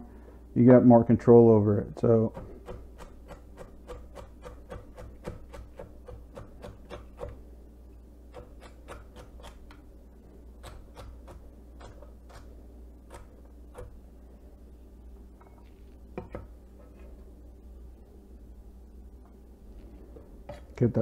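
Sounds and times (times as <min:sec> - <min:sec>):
knife chopping on wooden board: 0:02.3 - 0:07.4.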